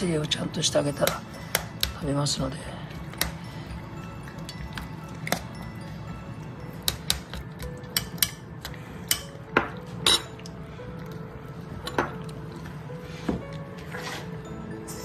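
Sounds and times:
sharp clinks on metal bowl: 10.0 - 10.4.

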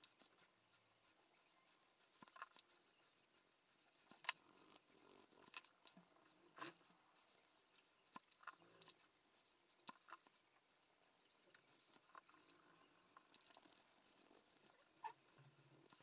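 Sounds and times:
small sharp clicks: 4.1 - 4.6, 5.3 - 6.0.

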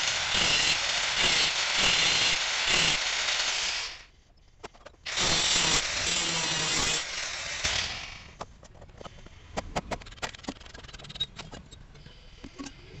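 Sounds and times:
cut-off wheel grinding steel: 5.1 - 8.4.

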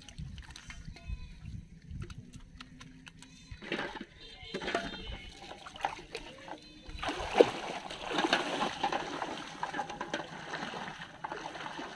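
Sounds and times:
wading through shallow water: 0.0 - 11.9
sharp loud splash: 7.0 - 9.7.

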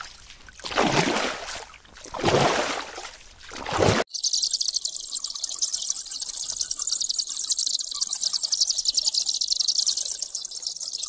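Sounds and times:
flying foxes chattering: 4.1 - 11.0.

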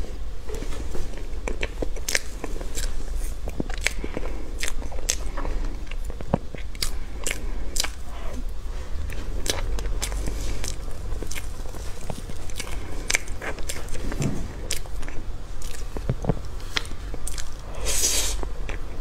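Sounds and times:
mouth clicks and smacks chewing: 1.4 - 8.4, 9.4 - 17.7.

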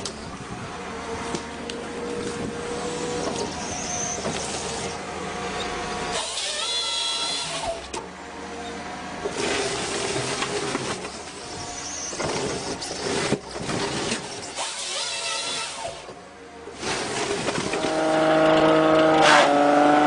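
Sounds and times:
rush of cutting noise: 16.8 - 20.0.

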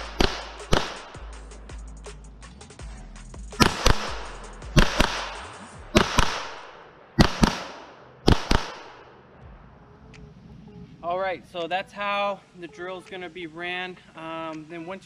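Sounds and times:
gunshots in double taps: 0.0 - 1.2, 3.6 - 9.0
gunshot echo: 0.0 - 1.3, 3.6 - 9.1.

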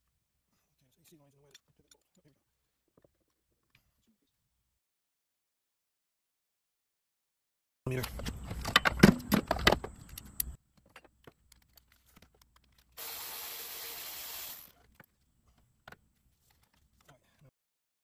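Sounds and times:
steady hiss: 13.0 - 14.7.

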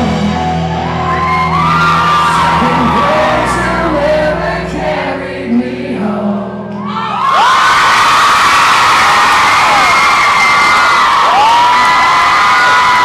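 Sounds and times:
man singing: 0.0 - 0.6, 2.3 - 6.7
rock band playing: 0.0 - 7.3
audience whooping: 0.1 - 3.8, 6.8 - 13.0.

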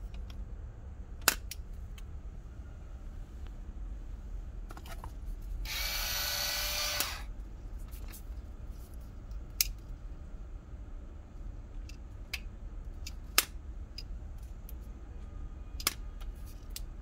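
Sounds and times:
electric mill motor whining: 5.7 - 7.3.

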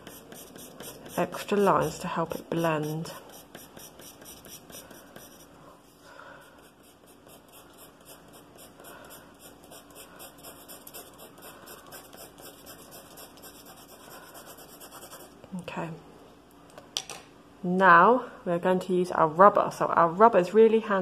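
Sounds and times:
pencil scratching on paper: 0.0 - 5.5, 6.5 - 15.3.

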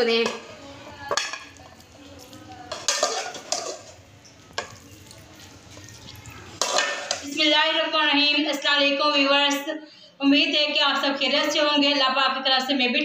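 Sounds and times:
metal spoon scraping a pot: 1.1 - 7.4.

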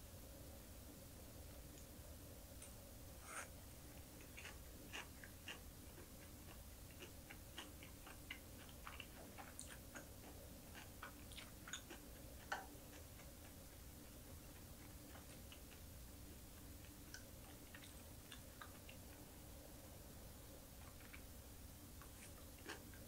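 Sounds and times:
close-up chewing crunches: 4.0 - 15.9, 22.0 - 23.0.

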